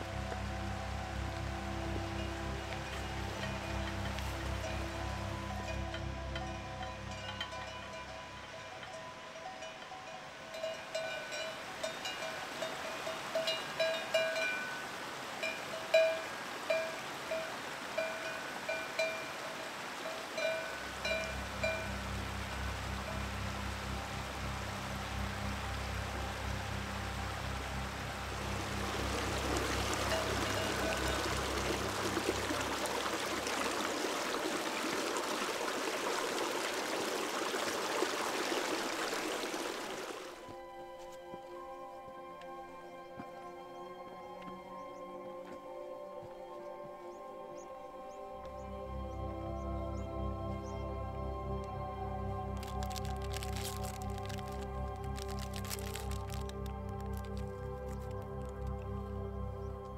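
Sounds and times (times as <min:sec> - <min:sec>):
stream running over rocks: 0:00.0 - 0:41.6, 0:45.4 - 0:59.6
cowbells clanking: 0:02.1 - 0:22.0, 0:30.0 - 0:31.9.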